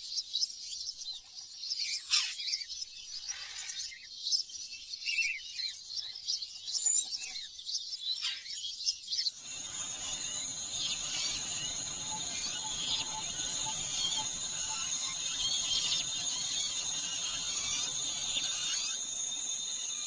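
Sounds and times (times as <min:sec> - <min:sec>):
small birds chirping: 0:00.0 - 0:20.0
steady high hum: 0:09.5 - 0:20.0.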